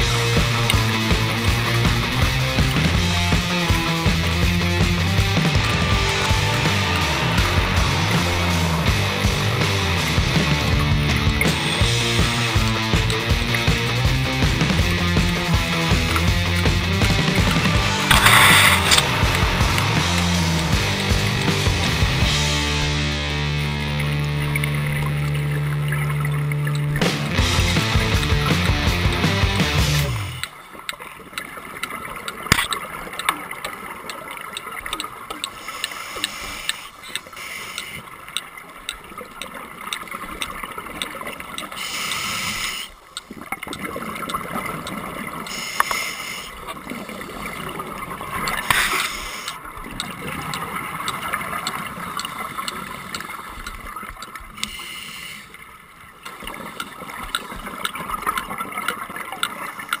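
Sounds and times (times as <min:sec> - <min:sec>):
regulator hissing: 0:00.0 - 0:23.5, 0:35.5 - 0:38.2, 0:41.7 - 0:43.0, 0:45.4 - 0:46.6, 0:48.6 - 0:49.7, 0:54.6 - 0:55.6
exhaust bubbles gurgling: 0:00.0 - 0:54.8, 0:55.5 - 1:00.0
sharp clicks: 0:14.6 - 0:21.8, 0:24.0 - 0:45.0, 0:45.7 - 0:46.2, 0:48.4 - 0:55.5, 0:56.2 - 1:00.0.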